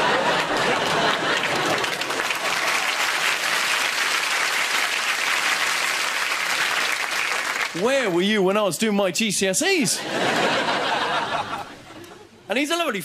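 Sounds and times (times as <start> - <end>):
audience laughter: 0.0 - 3.3, 10.0 - 12.5
audience applauding: 0.0 - 8.2.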